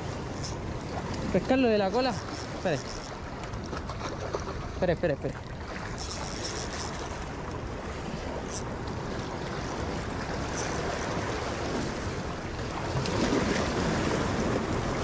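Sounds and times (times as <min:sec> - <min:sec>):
waves splashing against rocks: 0:00.0 - 0:15.0.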